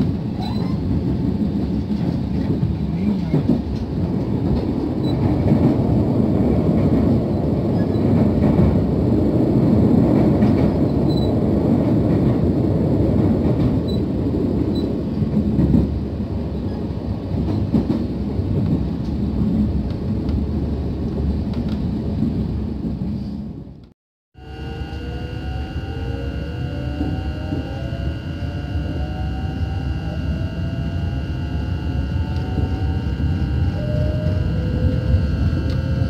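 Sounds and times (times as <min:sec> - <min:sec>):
train wheels rumbling on rails: 0:00.0 - 0:23.8.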